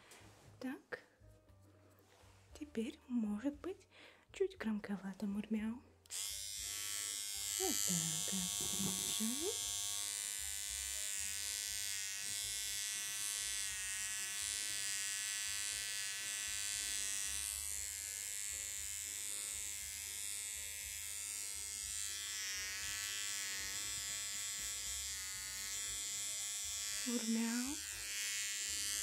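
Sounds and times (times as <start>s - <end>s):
electric hair trimmer buzzing: 6.1s - 29.0s.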